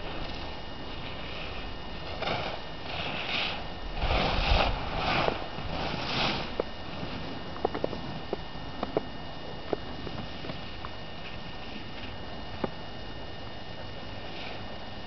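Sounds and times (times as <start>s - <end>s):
skis swishing on snow: 0.1s - 7.3s.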